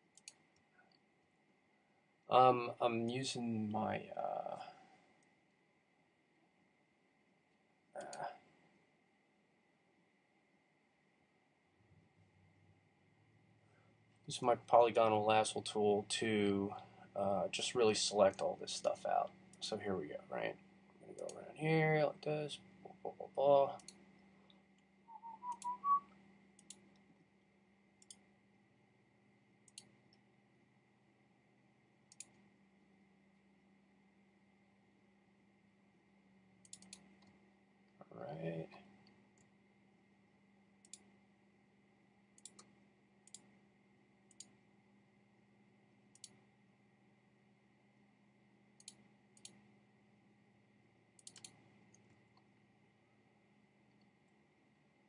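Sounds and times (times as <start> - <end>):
faint steady hum: 0.0 - 55.0
computer mouse clicking: 0.1 - 1.0, 8.0 - 8.3, 21.1 - 21.4, 23.8 - 24.9, 26.6 - 27.1, 28.0 - 28.3, 29.6 - 30.2, 32.1 - 32.4, 36.6 - 37.4, 40.8 - 41.2, 42.3 - 43.6, 44.3 - 44.6, 46.1 - 46.5, 48.8 - 49.7, 51.2 - 52.5
person whistling rising notes: 25.1 - 26.0.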